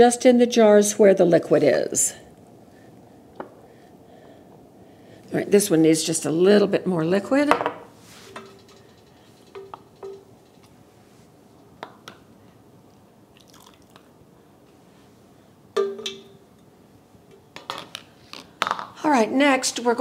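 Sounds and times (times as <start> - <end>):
ladle clinking on pot and jar: 9.5 - 10.3.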